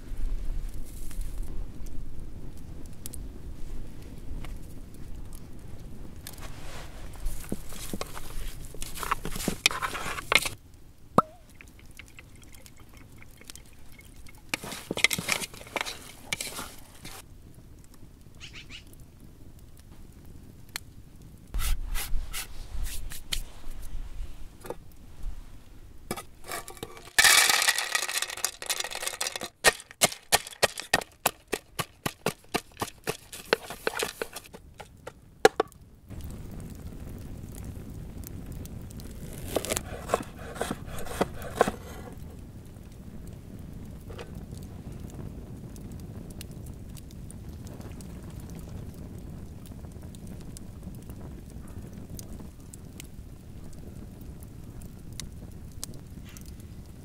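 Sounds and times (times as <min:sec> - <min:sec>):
rustling: 0:06.3 - 0:10.6, 0:11.2 - 0:17.2, 0:21.6 - 0:35.7, 0:39.0 - 0:42.3
hands working meat in metal pot: 0:11.2 - 0:17.2, 0:26.1 - 0:35.7.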